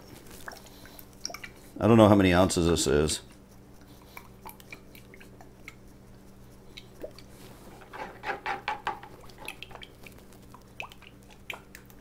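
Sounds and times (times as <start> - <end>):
squelching splashes: 0.3 - 1.8, 9.2 - 12.0.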